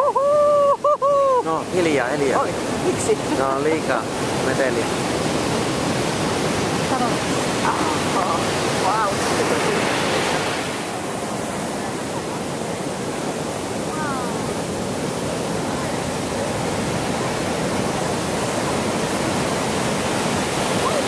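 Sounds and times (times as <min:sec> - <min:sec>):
ocean waves breaking: 0:00.0 - 0:21.0.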